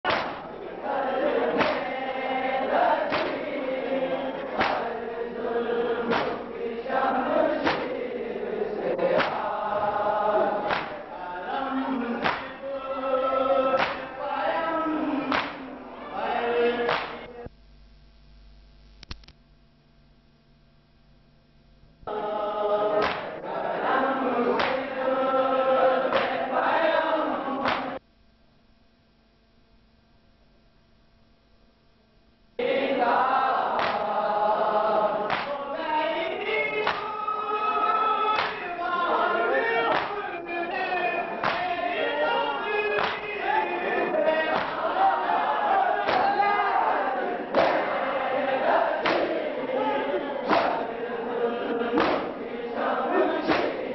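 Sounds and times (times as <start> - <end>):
unison chest-beats: 0.0 - 8.2, 9.0 - 12.6, 13.6 - 14.2, 15.2 - 15.9, 16.9 - 17.3, 23.0 - 24.0, 24.6 - 25.0, 26.1 - 26.5, 27.6 - 28.0, 33.7 - 35.7, 36.8 - 37.2, 38.3 - 38.8, 39.8 - 40.3, 41.3 - 42.0, 42.8 - 53.9
men chanting together: 0.0 - 17.4, 22.1 - 28.0, 32.6 - 53.9
faint tape hiss: 0.1 - 53.9.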